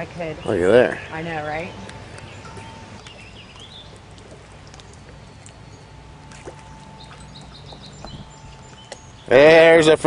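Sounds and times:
steady low hum: 0.0 - 10.0
water splashing by hand: 1.8 - 9.2.

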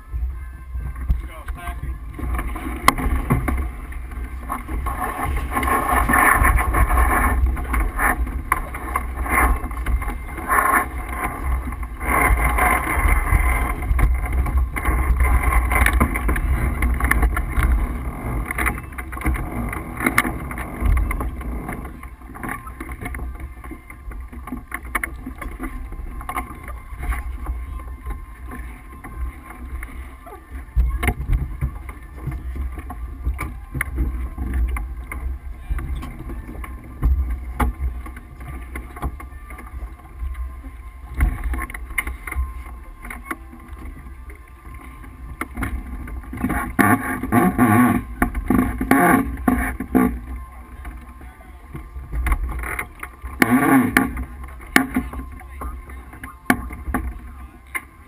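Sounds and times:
wind buffeting microphone: 0.0 - 42.8.

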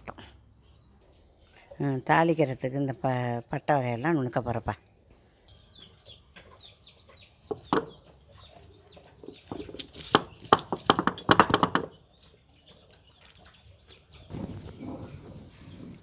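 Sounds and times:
stone pounding and crushing spices: 9.2 - 12.2
stone knocks: 9.5 - 11.9.

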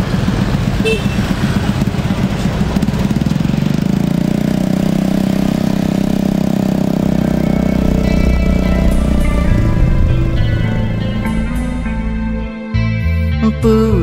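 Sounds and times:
small motorcycle engine running: 0.0 - 12.8.

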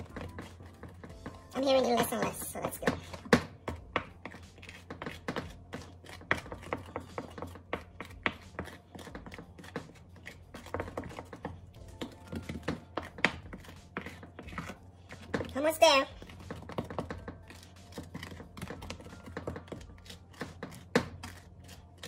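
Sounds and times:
spoon stirring thick mixture: 0.0 - 22.0.

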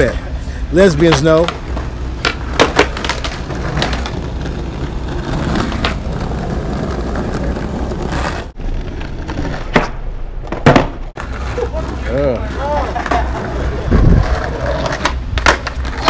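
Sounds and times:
skateboard wheels rolling on asphalt: 0.0 - 16.0
skateboard deck clacking on ground: 1.1 - 8.3, 12.5 - 16.0.

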